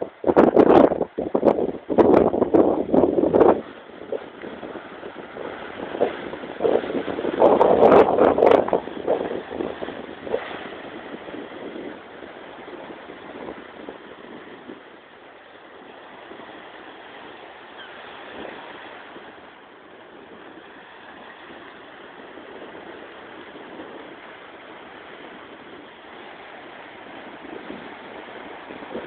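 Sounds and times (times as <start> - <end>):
small waves breaking on beach: 0.0 - 29.0.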